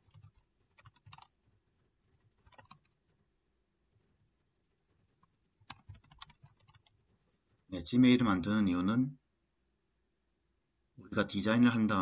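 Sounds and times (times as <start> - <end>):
computer keyboard typing: 0.0 - 1.6, 2.2 - 3.2, 5.2 - 7.0.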